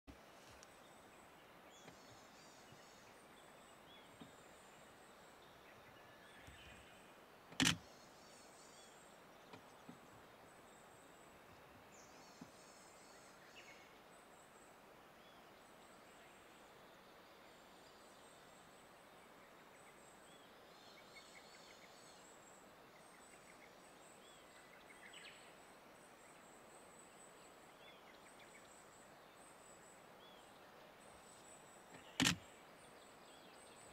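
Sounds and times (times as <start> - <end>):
sharp click: 7.5 - 7.8, 32.0 - 32.4.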